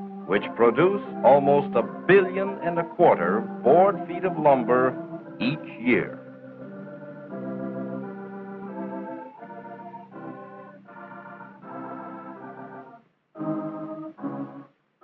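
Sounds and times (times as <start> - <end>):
organ-like film score chords: 0.0 - 14.7.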